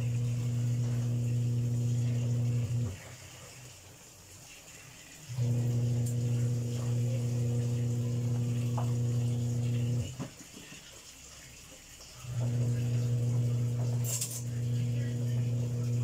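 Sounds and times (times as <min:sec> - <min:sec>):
electrical hum from cooktop: 0:00.0 - 0:03.7, 0:05.2 - 0:10.3, 0:12.2 - 0:16.0.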